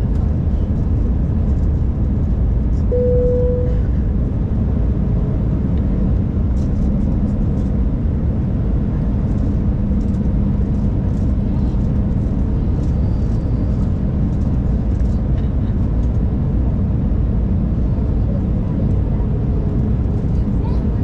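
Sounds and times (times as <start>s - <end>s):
airplane cabin engine rumble: 0.0s - 21.0s
short steady tone: 2.9s - 3.9s.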